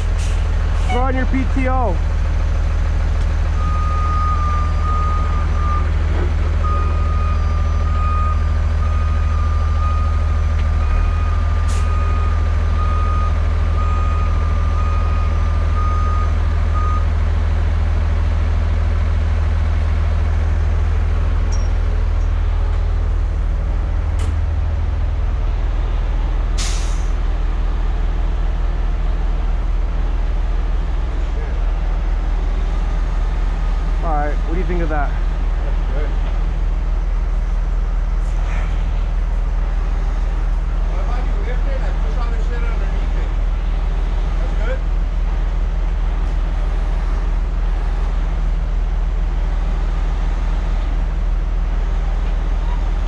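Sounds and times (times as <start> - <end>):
heavy diesel trucks running: 0.0 - 53.0
truck reversing alarm beeping: 3.5 - 17.1
short air hisses: 26.6 - 27.1.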